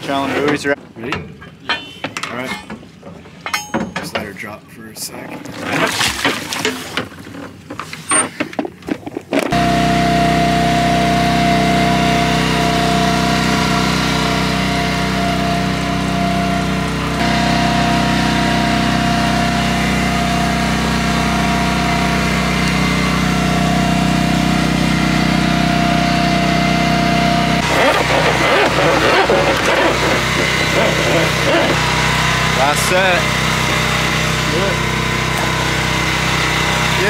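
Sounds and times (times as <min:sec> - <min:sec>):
metal clinks: 0:03.4 - 0:04.2
splash in water: 0:05.4 - 0:07.0
high engine whine: 0:09.4 - 0:37.0
boat engine droning: 0:09.5 - 0:37.0.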